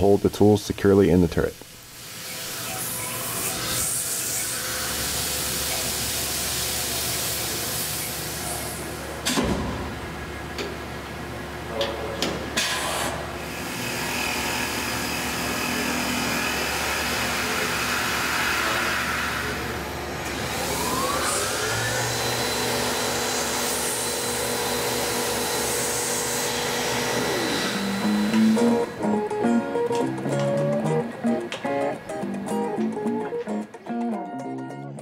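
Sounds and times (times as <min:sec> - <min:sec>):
coolant mist hissing: 0:00.0 - 0:08.9
mill spindle running: 0:12.6 - 0:31.6.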